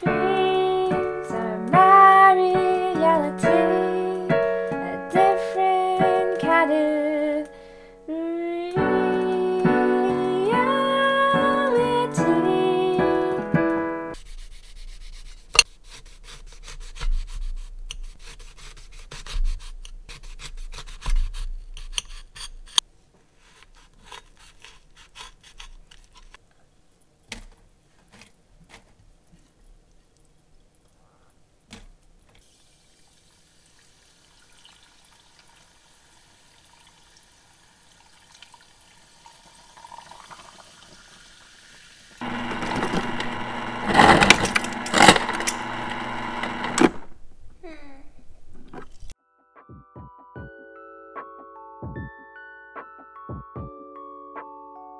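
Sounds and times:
knife sawing through lemon: 14.2s - 22.8s, 23.4s - 26.3s
ice dispenser humming: 38.0s - 47.2s.

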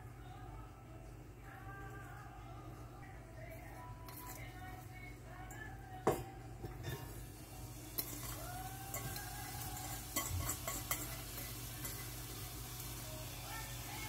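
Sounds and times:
food frying in a pan: 7.0s - 14.0s
utensil clinking against pan: 8.0s - 12.1s.

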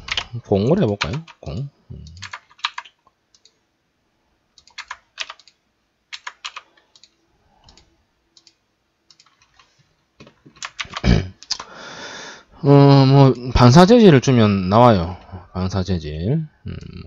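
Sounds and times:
computer keyboard typing: 0.0s - 3.6s, 4.6s - 11.7s.

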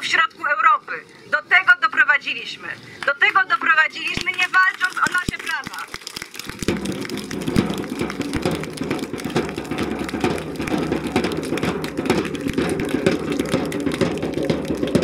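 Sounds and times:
crowd applauding: 4.0s - 15.0s.

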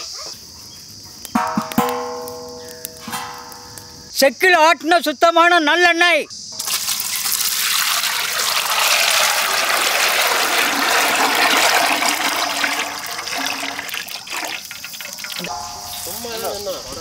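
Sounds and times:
oil splashing into metal pan: 6.6s - 16.1s.

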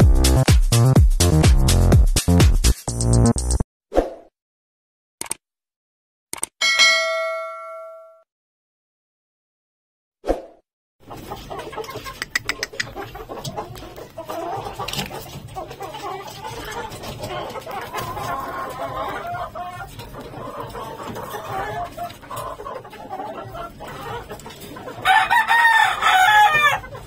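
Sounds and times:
sharp clicks: 5.2s - 5.4s, 6.3s - 6.6s, 12.2s - 13.0s
chicken clucking: 11.0s - 27.0s.

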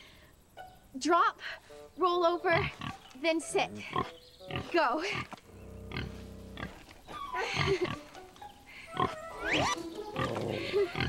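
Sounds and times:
light background music: 0.0s - 11.0s
pig oinking and squealing: 2.6s - 3.0s, 3.8s - 8.0s, 8.9s - 11.0s.

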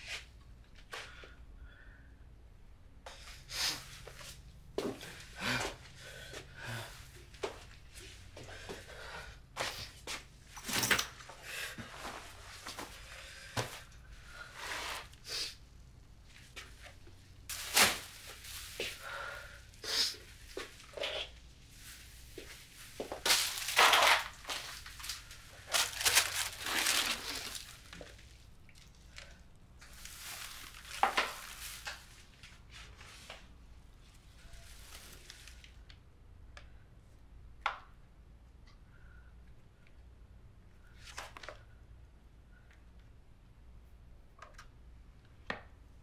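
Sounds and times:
clothes rustling and crumpling: 3.1s - 15.2s, 16.2s - 35.8s.

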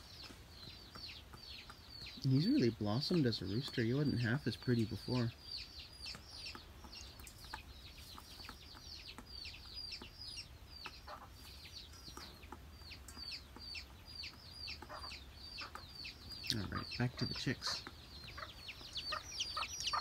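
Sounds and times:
chicks peeping: 0.0s - 20.0s
low cluck: 6.0s - 20.0s.

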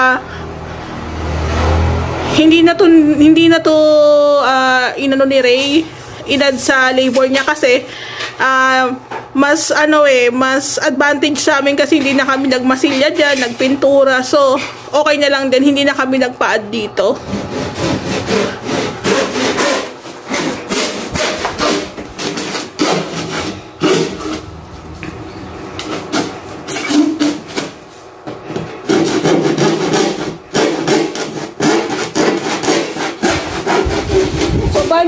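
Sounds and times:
handsaw cutting plastic: 17.2s - 24.5s, 25.8s - 27.8s, 28.8s - 35.0s.

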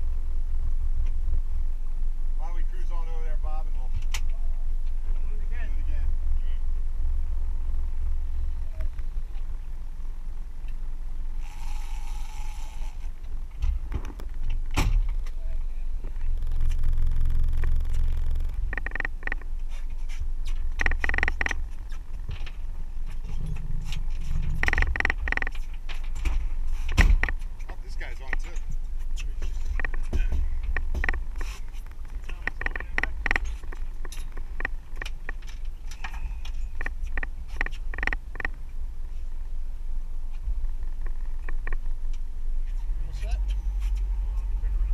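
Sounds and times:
boat engine rumble: 0.0s - 44.9s
sharp clicks and knocks: 16.2s - 38.6s, 41.0s - 44.1s.

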